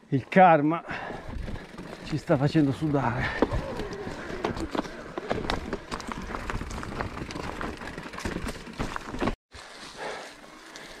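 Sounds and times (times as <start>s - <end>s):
bike rattling: 0.9s - 11.0s
tyres crunching over stones: 1.4s - 9.9s
tyres rolling over dry leaves: 1.6s - 11.0s.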